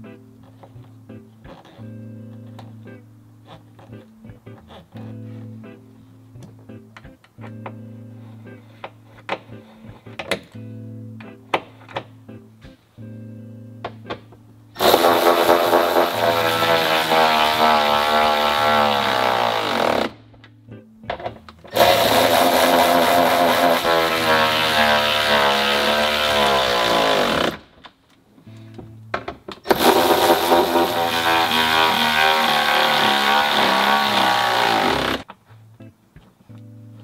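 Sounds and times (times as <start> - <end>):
background music: 0.0 - 37.0
cordless electric ratchet running: 14.8 - 17.2, 21.8 - 27.6, 29.7 - 35.2.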